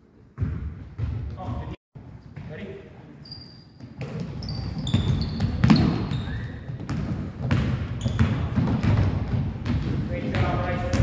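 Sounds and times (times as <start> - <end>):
basketball bouncing on wooden floor: 0.4 - 1.6, 3.8 - 11.0
sneakers squeaking: 0.4 - 11.0.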